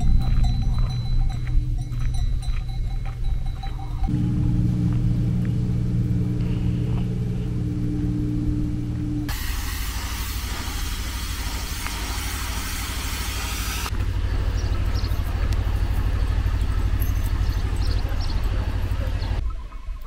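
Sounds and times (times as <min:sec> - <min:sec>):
wind buffeting microphone: 0:00.0 - 0:08.0
outdoor hiss: 0:09.2 - 0:14.2.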